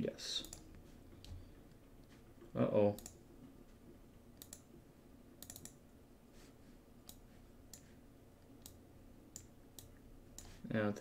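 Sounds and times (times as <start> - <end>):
faint computer mouse clicks: 3.0 - 3.2, 4.4 - 4.7.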